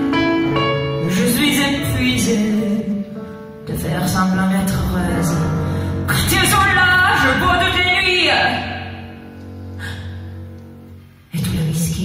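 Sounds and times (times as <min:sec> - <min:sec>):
woman singing a slow ballad: 0:01.0 - 0:07.3.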